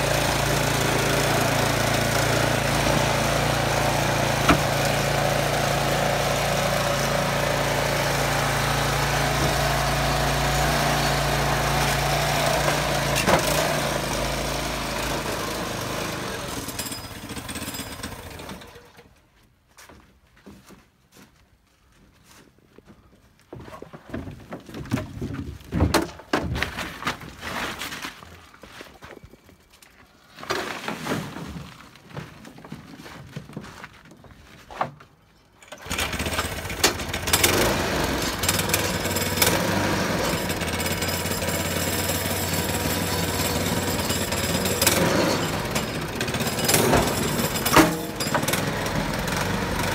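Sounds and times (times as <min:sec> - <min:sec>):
small engine running: 0:00.0 - 0:19.0, 0:35.6 - 0:49.9
knocking and rattling: 0:23.6 - 0:27.3.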